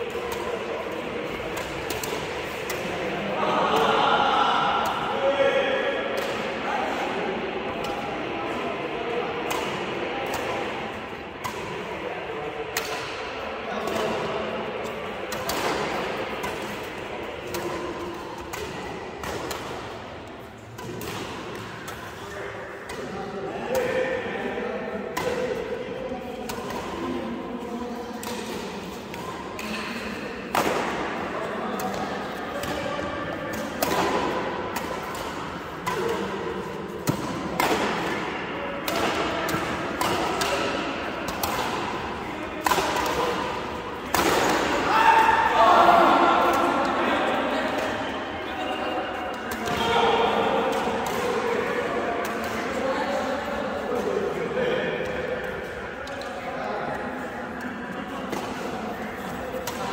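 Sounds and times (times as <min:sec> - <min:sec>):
background noise: 0:00.0 - 0:59.9
hall hubbub: 0:00.0 - 0:59.9
badminton racket hitting shuttlecock: 0:00.1 - 0:03.1, 0:09.4 - 0:10.8, 0:11.4 - 0:11.9, 0:12.7 - 0:23.9, 0:25.1 - 0:27.1, 0:28.1 - 0:45.5, 0:49.3 - 0:53.4, 0:58.3 - 0:59.9
shuttlecock struck by rackets: 0:38.8 - 0:44.8.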